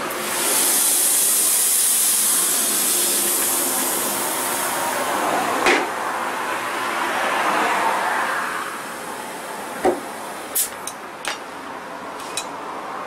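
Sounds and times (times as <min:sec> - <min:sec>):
compressed air hissing into tyre: 0:00.0 - 0:06.0, 0:10.0 - 0:10.9.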